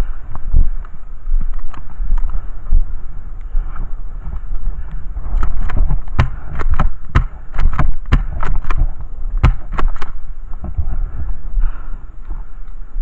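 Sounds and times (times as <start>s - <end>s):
wind buffeting microphone: 0.0s - 13.0s
airsoft shotgun shots: 6.2s - 8.6s, 9.4s - 10.0s.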